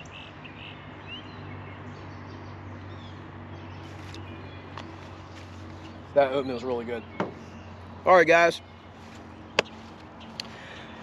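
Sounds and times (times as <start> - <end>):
low outdoor hum: 0.0 - 11.0
small birds chirping: 0.0 - 11.0.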